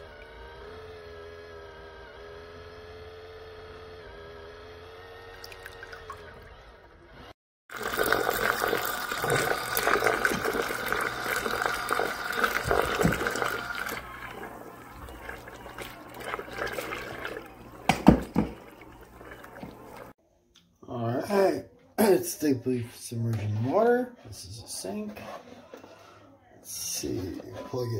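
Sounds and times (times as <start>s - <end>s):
low motor hum: 0.0s - 7.4s, 8.8s - 20.1s
water churning and swirling: 7.7s - 20.2s.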